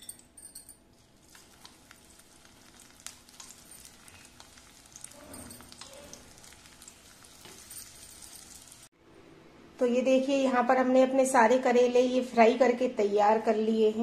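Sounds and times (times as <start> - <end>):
frying sizzle with crackles: 0.9 - 8.9.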